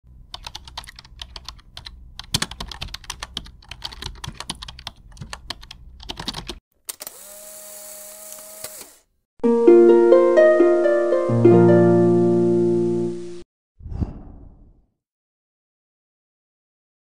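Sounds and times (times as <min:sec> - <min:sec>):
keyboard typing: 0:00.3 - 0:06.6.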